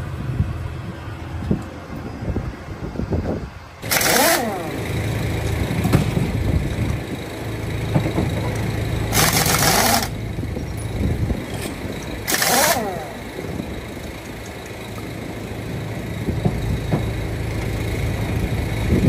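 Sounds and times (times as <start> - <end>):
engine idling: 0.0 - 19.0
pneumatic impact wrench hammering: 3.8 - 15.1.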